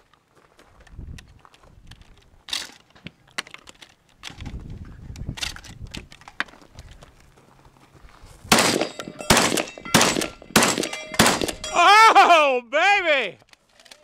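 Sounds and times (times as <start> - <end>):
shotgun shots: 8.5 - 11.7
metallic ring of steel targets: 8.5 - 12.0.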